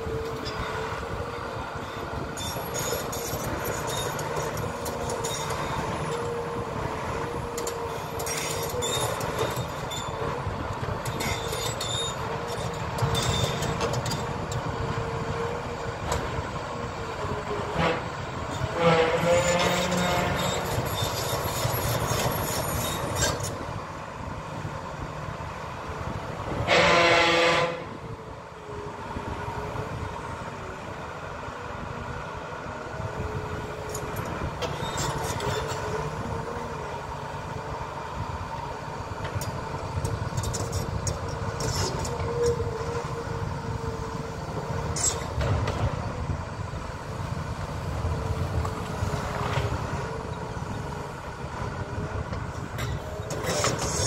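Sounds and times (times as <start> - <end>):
heavy engine rumbling: 0.0 - 54.0
horn: 18.7 - 20.5, 26.6 - 27.9.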